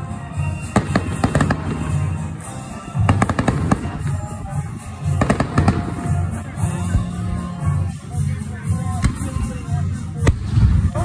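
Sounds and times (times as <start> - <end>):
fireworks bursting: 0.0 - 4.4, 5.0 - 6.4.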